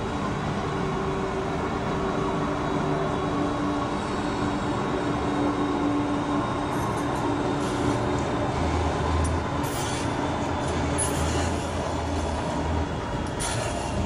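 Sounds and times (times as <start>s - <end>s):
tram rolling past: 0.0s - 14.0s.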